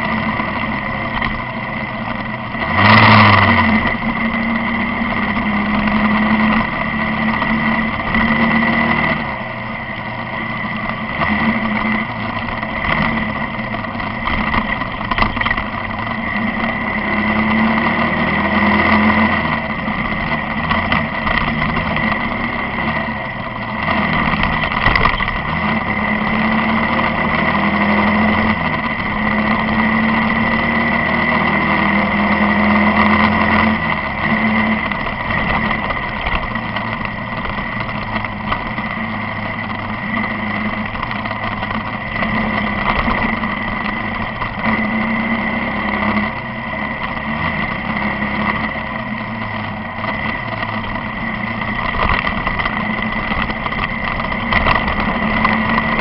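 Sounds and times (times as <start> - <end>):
motorcycle engine revving: 0.0 - 56.0
road and wind noise: 0.0 - 56.0.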